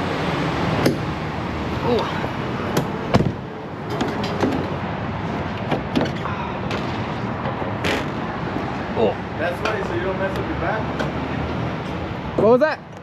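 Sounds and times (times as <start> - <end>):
truck door and hood latches knocking: 2.8 - 4.7.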